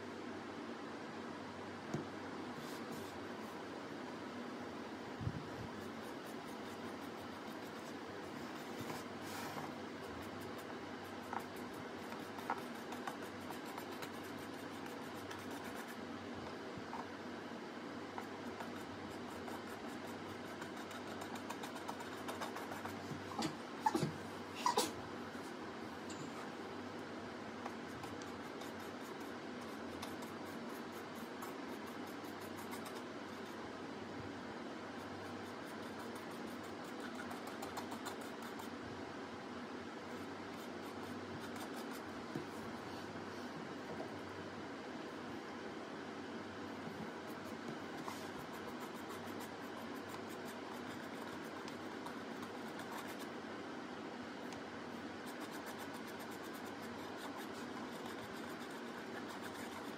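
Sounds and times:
faint low hum: 0.0s - 59.9s
room noise hiss: 0.0s - 59.9s
paintbrush scratching: 5.6s - 16.0s, 18.2s - 23.3s, 27.7s - 33.6s, 35.0s - 38.8s, 40.2s - 42.7s, 47.2s - 53.4s, 55.2s - 59.9s.

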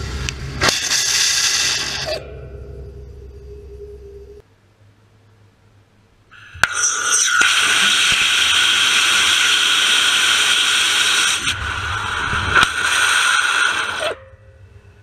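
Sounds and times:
rocket engine hissing: 0.0s - 2.2s, 6.4s - 14.2s.

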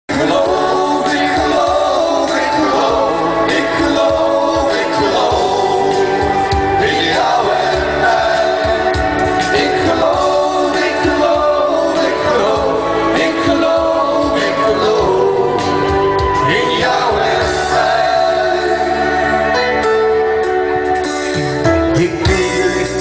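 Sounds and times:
voices singing a song: 0.1s - 19.8s
musical accompaniment: 0.1s - 23.0s
man singing long notes: 21.8s - 23.0s.

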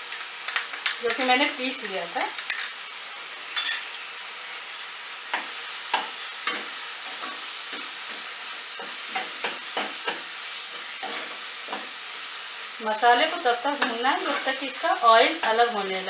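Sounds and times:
masala sizzling in hot oil: 0.0s - 16.0s
steel spoon scraping pan: 10.8s - 11.9s.

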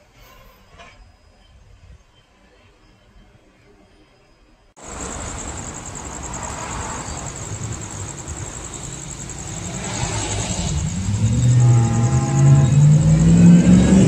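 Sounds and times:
night insects trilling: 4.2s - 14.0s.

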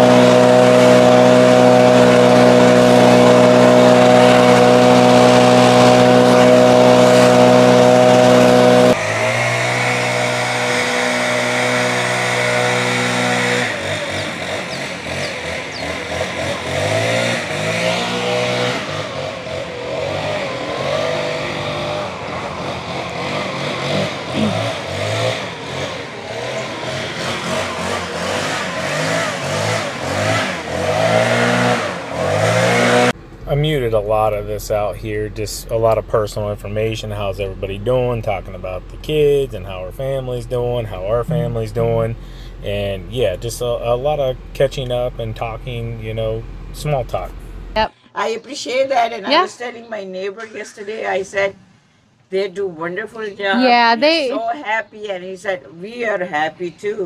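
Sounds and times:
leaf blower running: 0.0s - 33.2s, 41.3s - 42.8s.

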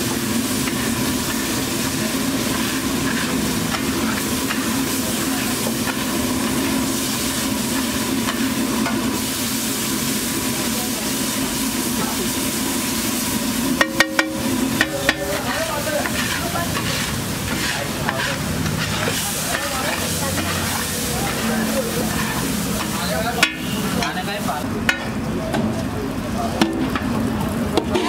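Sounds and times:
eggs sizzling on a griddle: 0.0s - 25.4s
metal spatula scraping: 0.6s - 9.0s, 13.8s - 24.3s, 27.8s - 28.0s.

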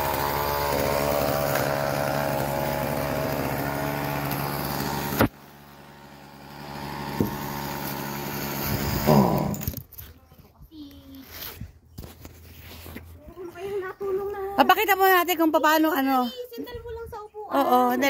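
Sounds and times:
chainsaw engine running: 0.0s - 9.9s.

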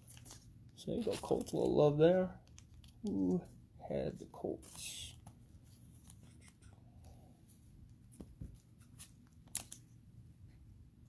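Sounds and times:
trading cards clicking and rustling: 2.4s - 3.5s, 8.4s - 9.9s.

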